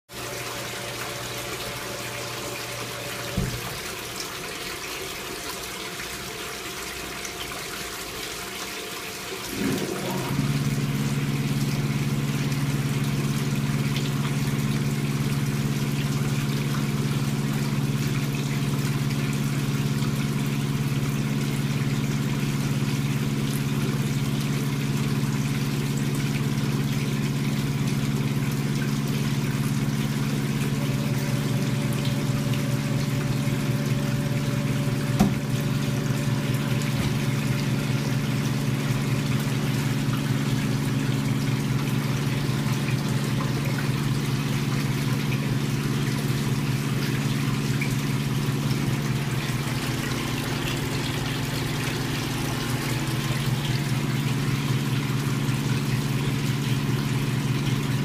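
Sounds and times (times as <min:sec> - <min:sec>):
liquid pouring and splashing: 0:00.1 - 0:58.0
low machine hum: 0:09.3 - 0:58.0
electric motor hum: 0:09.5 - 0:11.3, 0:30.6 - 0:40.0.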